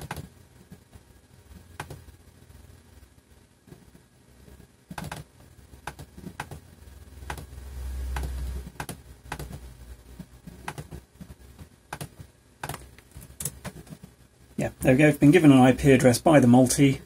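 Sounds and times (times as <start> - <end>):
computer mouse clicks: 1.8 - 2.0, 4.9 - 6.6, 7.2 - 7.5, 8.1 - 9.6, 10.2 - 14.1.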